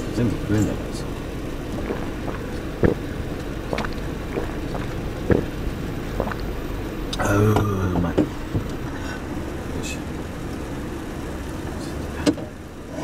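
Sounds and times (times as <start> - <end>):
low rumble: 0.0 - 11.3
person gulping a drink: 1.7 - 5.6, 6.2 - 6.6.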